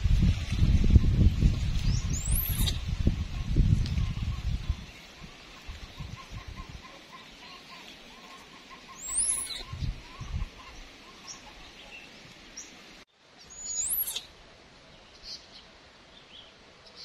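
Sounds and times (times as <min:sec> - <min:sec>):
shrill high sweeping calls: 0:09.0 - 0:09.7, 0:13.5 - 0:14.3.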